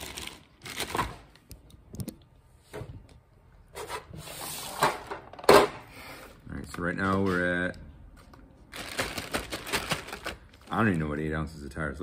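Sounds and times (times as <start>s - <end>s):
plastic bag rustling: 0.0s - 1.3s, 8.7s - 11.2s.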